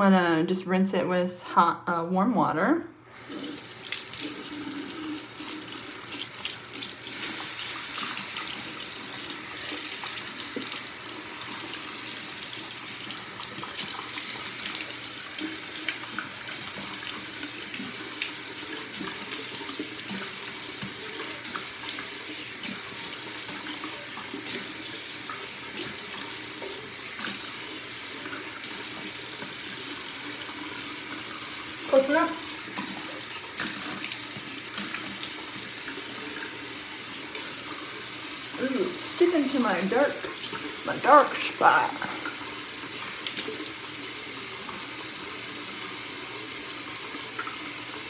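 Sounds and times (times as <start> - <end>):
tap running into sink: 3.3 - 10.9.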